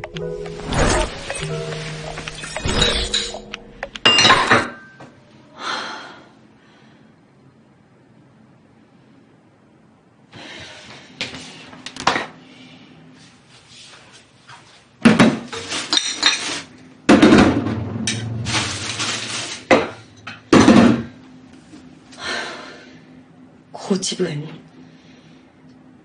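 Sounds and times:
dishes and pots clattering: 0.9 - 5.1, 15.1 - 18.6.

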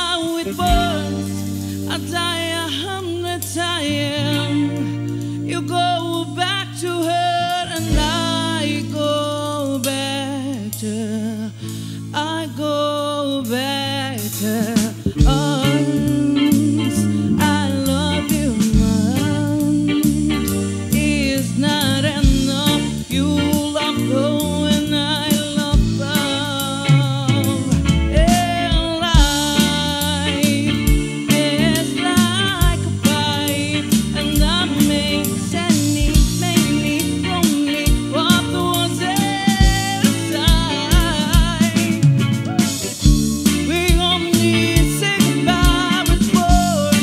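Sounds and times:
woman singing: 0.0 - 42.2, 43.0 - 47.0
drum kit: 0.0 - 47.0
electric bass: 0.0 - 47.0
electric guitar: 0.0 - 47.0.

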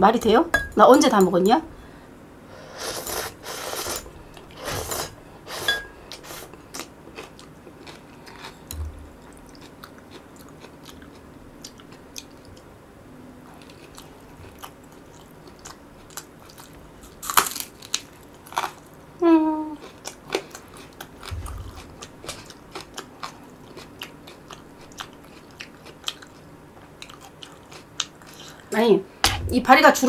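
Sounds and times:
noodle slurping: 2.7 - 6.6
quiet chewing with mouth clicks: 6.1 - 12.7, 13.4 - 16.8, 19.8 - 28.7.

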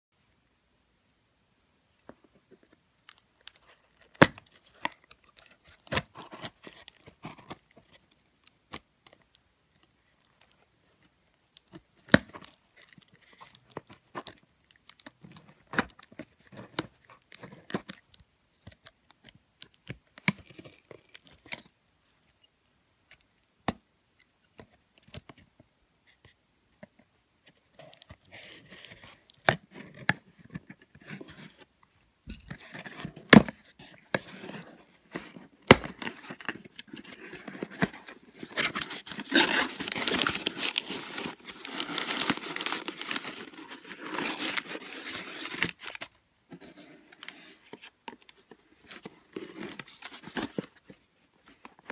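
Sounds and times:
cardboard rustling and scraping: 32.5 - 51.9.

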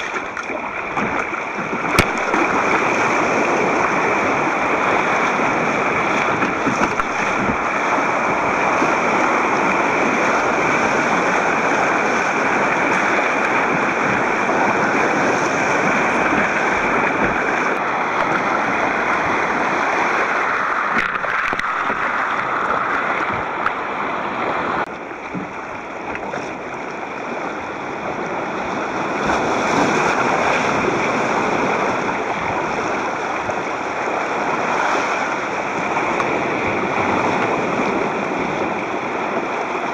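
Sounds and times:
surf breaking on rocks: 0.0 - 27.4
water splashing against a kayak: 0.0 - 39.9.

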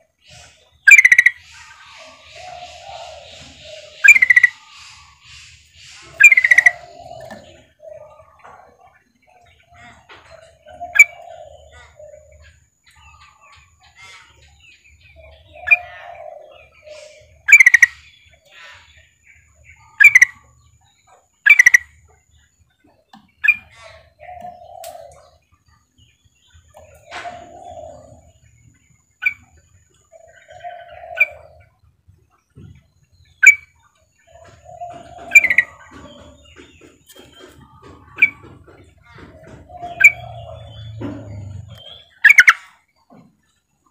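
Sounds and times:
soft warbled bird notes: 0.0 - 8.4, 39.6 - 42.8
bird sharp chirps: 0.3 - 7.6.

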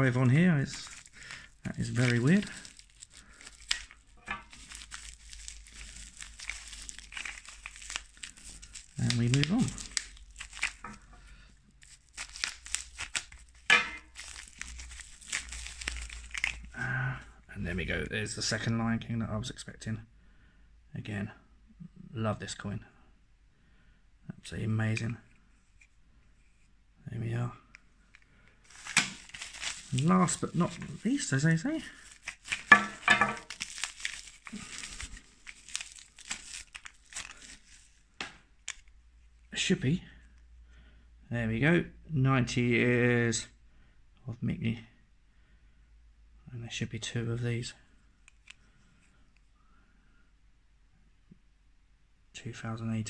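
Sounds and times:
plastic wrapping crinkling: 0.0 - 16.8, 28.6 - 39.3.

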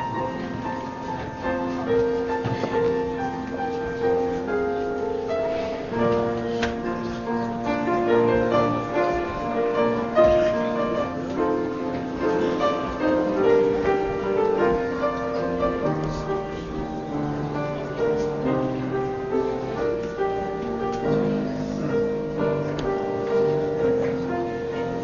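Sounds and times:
slow keyboard music: 0.0 - 25.0.

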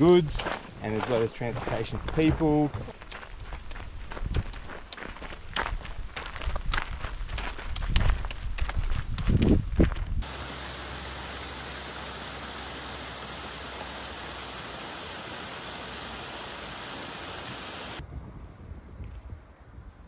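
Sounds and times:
footsteps on gravel: 0.2 - 10.0
rushing water: 10.2 - 18.0.

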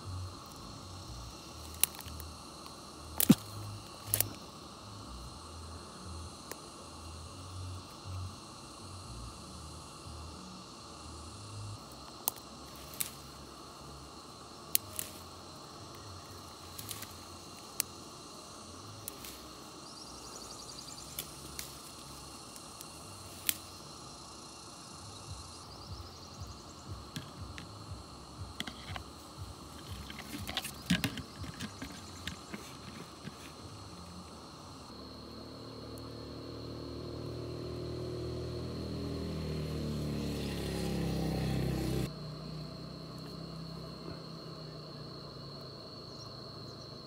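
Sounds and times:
insect rhythmic trill: 0.0 - 47.0
insects droning: 0.0 - 47.0
rustles: 11.9 - 24.1, 25.1 - 34.8.

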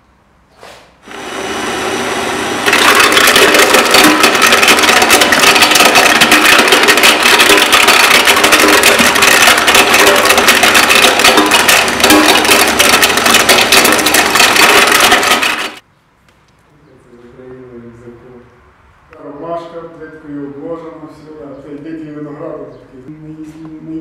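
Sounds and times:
electric drill running: 1.0 - 15.8
walnut shells cracking: 2.6 - 15.8.

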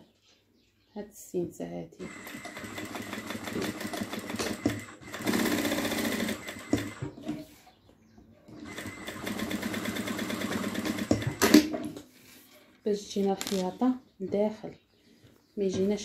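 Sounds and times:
sewing machine stitching: 2.0 - 7.4, 8.5 - 12.0.

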